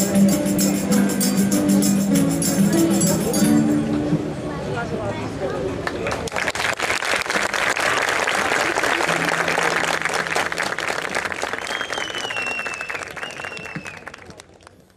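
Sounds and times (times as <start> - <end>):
audience applauding: 5.8 - 14.9
long high whistle: 11.6 - 14.1.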